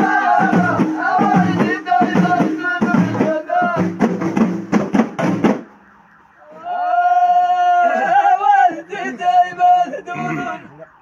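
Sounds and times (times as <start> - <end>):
men singing together: 0.0 - 4.0
frame drums beaten by hand: 0.0 - 5.7.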